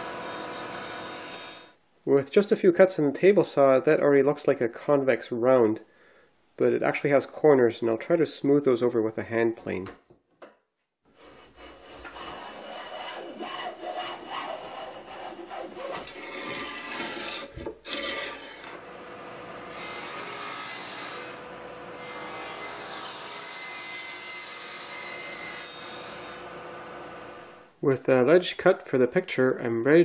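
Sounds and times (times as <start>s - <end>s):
table saw cutting wood: 0.0s - 1.8s, 11.1s - 18.9s, 19.7s - 27.6s
hand plane shaving wood: 11.2s - 18.8s.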